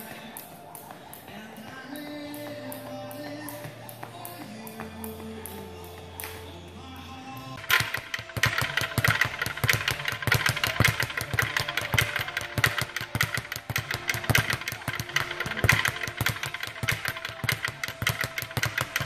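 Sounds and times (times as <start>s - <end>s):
speed bag rattling: 7.6s - 19.0s.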